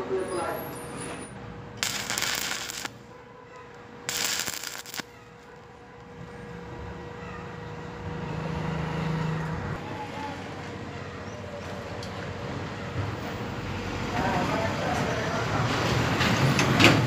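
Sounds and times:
crackling welding arc: 1.8s - 3.1s, 4.1s - 5.5s.

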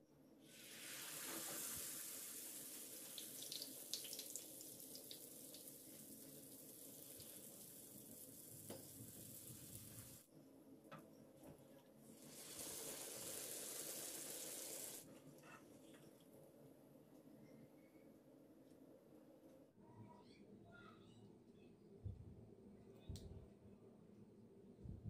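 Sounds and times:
dough sizzling in hot oil: 0.5s - 10.3s, 12.3s - 15.0s.

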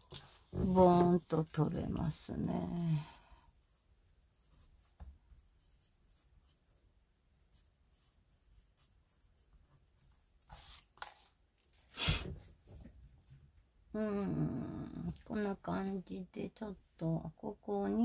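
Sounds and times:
pencil scratching on paper: 4.4s - 6.7s, 7.5s - 11.3s
pencil swishes: 10.4s - 12.3s.

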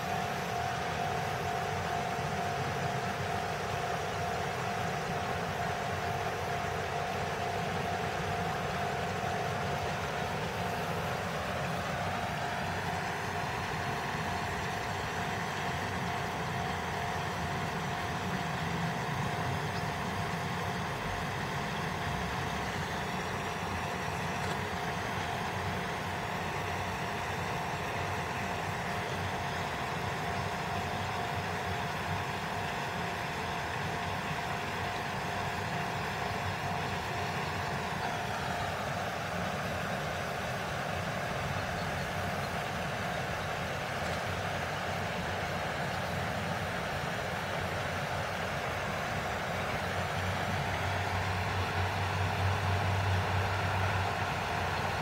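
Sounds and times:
engine hum: 0.0s - 55.0s
higher engine tone: 35.4s - 55.0s.

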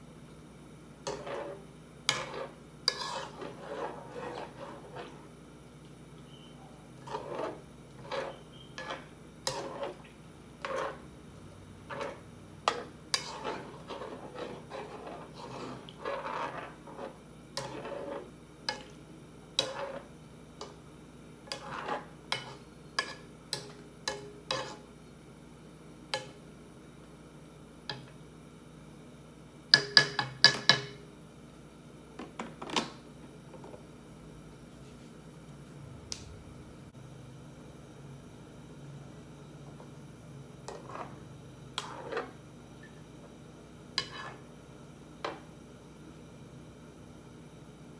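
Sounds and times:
utensil scraping and clinking in pot: 1.0s - 5.3s, 6.3s - 11.1s, 11.8s - 20.8s, 21.4s - 24.9s, 40.6s - 43.0s, 43.9s - 44.5s.

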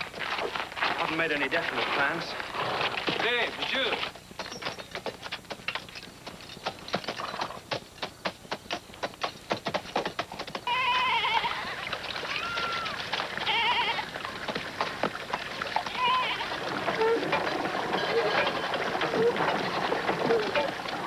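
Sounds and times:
horse hooves clopping on stone: 0.0s - 21.0s
animals bleating: 10.7s - 14.2s, 15.9s - 19.5s.

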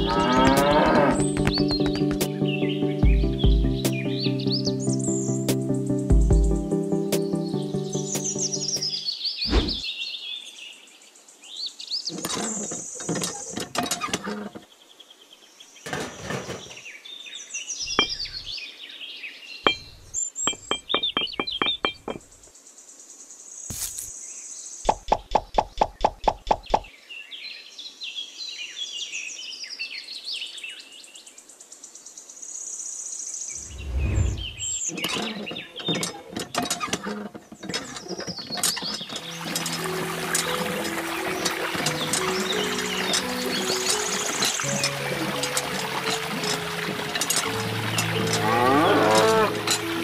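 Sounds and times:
small birds chirping: 0.0s - 50.0s
tapping and knocking: 1.1s - 2.3s, 17.9s - 18.5s, 19.7s - 22.3s.

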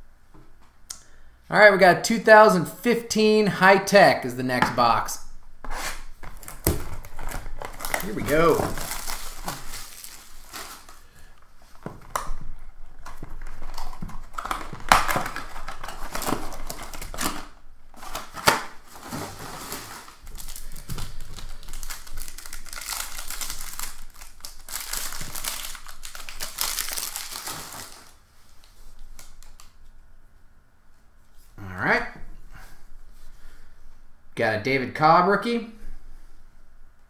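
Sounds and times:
plastic wrap crinkling and tearing: 5.6s - 29.8s.

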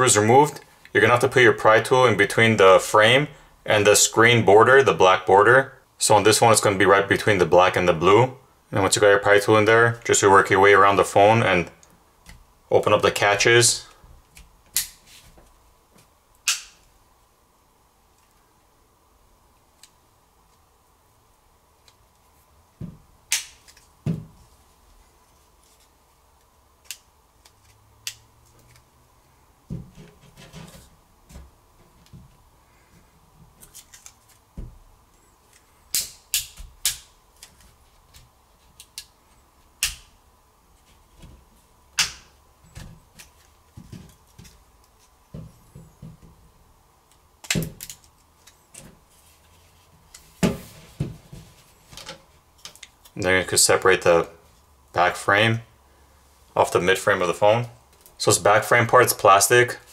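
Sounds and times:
sharp plastic clicks and snaps: 39.8s - 40.1s.

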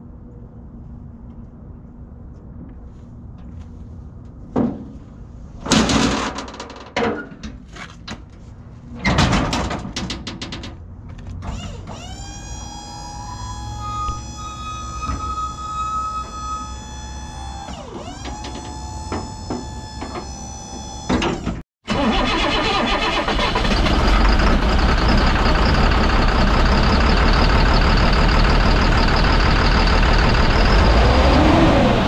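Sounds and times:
metal liftgate clanking and banging: 9.0s - 10.8s
hydraulic pump motor whine: 11.5s - 21.5s, 28.9s - 32.0s.

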